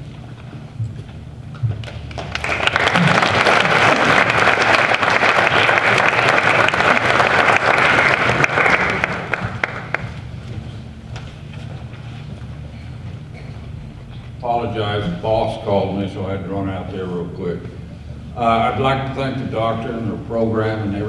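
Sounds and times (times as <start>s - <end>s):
audience applauding: 1.8s - 10.2s.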